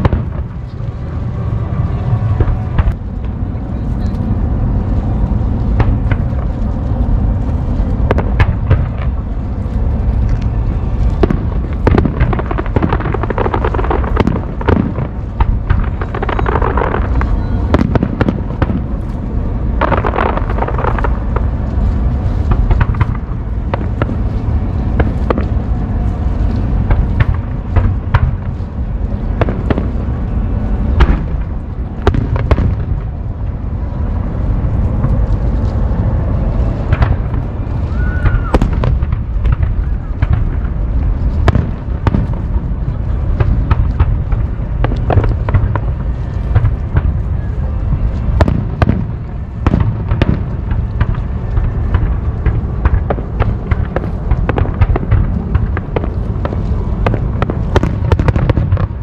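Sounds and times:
deep rumble: 0.0 - 59.0
fireworks bangs and crackles: 0.0 - 59.0.

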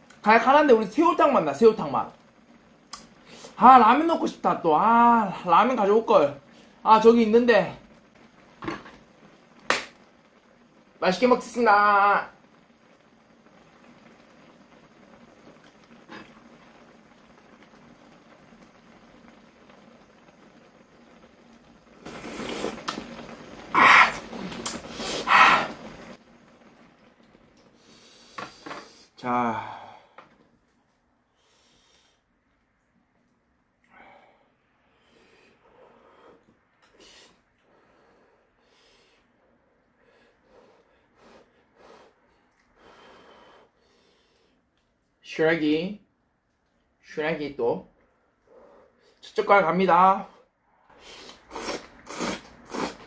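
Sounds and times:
person slurping soup: 22.0 - 23.0, 23.7 - 25.9, 51.0 - 53.0.

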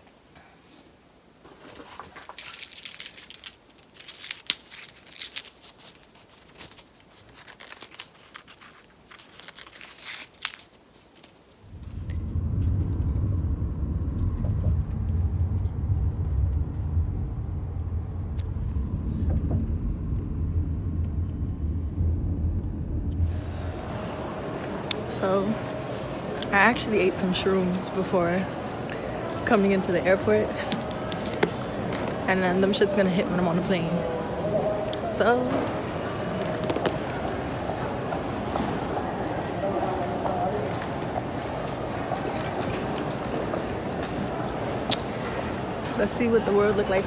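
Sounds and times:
road noise inside a car: 11.6 - 26.4.

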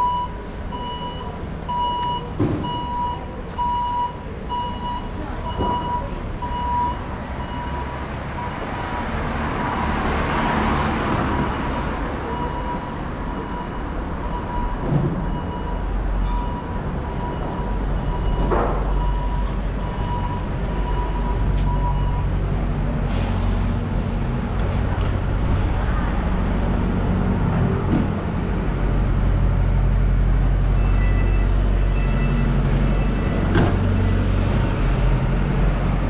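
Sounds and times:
bus engine running low: 0.0 - 36.0
street traffic: 0.0 - 36.0
air brakes hissing: 22.2 - 23.9.

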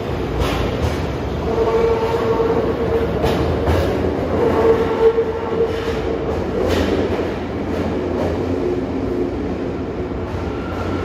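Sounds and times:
train wheels rumbling on rails: 0.0 - 11.0
clacks over rail joints: 0.2 - 8.6.

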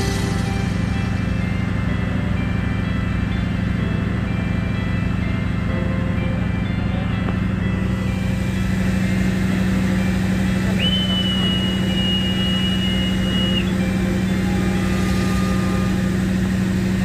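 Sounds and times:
diesel engine idling: 0.0 - 17.0
whistle long blast: 10.5 - 16.8.

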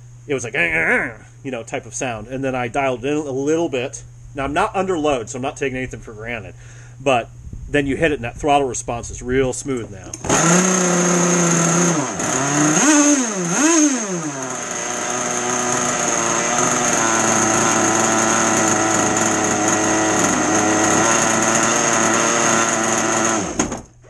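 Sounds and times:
two-stroke engine revving: 10.1 - 23.8.

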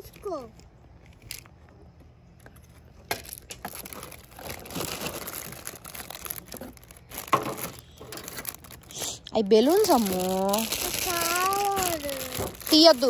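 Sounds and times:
plastic bags crinkling: 3.1 - 13.0
items knocking in a box: 6.5 - 8.2, 11.7 - 12.8.

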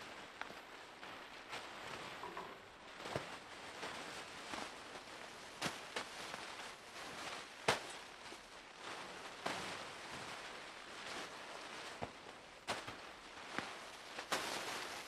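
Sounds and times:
faint hiss: 0.0 - 15.0
rustling movement: 0.0 - 15.0.

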